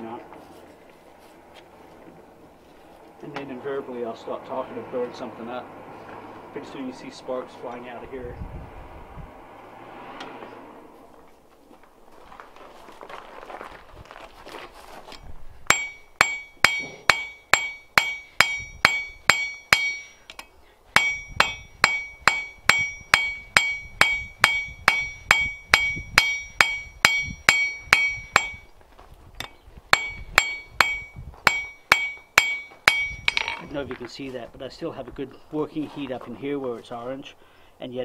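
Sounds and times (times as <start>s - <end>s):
hammer ringing on an anvil: 15.7s - 20.3s, 21.0s - 28.7s, 29.4s - 33.6s.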